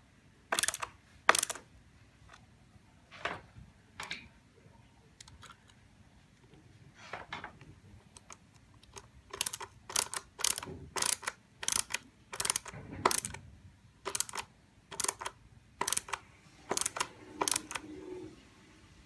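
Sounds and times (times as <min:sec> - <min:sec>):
ratcheting screwdriver clicks: 0:00.5 - 0:01.6, 0:08.1 - 0:13.4, 0:14.1 - 0:17.8.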